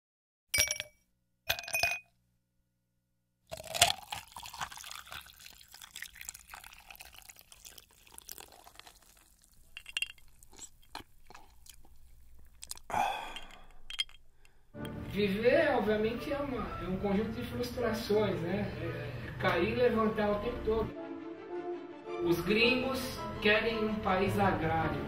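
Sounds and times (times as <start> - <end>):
glassy clinks: 0.6 - 2.1, 8.8 - 10.9, 12.9 - 15.0
liquid-like crackling with clicks: 3.5 - 15.0.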